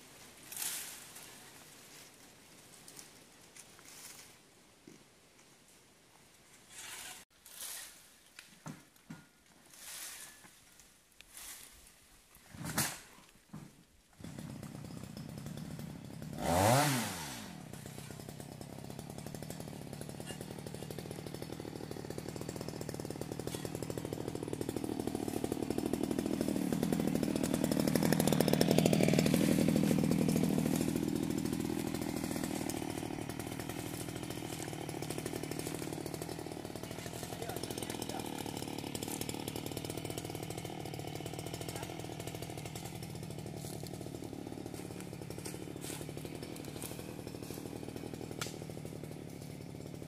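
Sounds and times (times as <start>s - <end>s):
chainsaw running: 13.5s - 50.0s.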